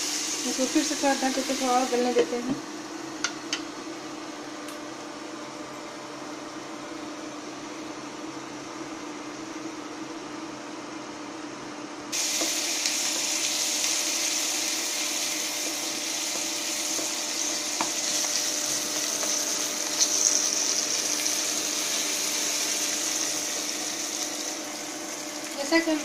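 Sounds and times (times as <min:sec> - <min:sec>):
onions sizzling in a pan: 0:00.0 - 0:02.5, 0:12.1 - 0:26.0.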